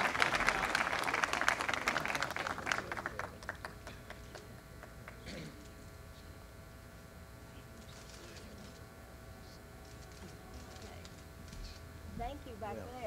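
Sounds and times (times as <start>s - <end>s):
audience applause: 0.0s - 4.4s.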